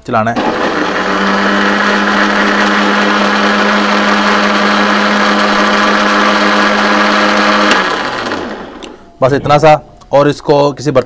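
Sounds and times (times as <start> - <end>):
electric blender motor running: 0.4 - 9.0.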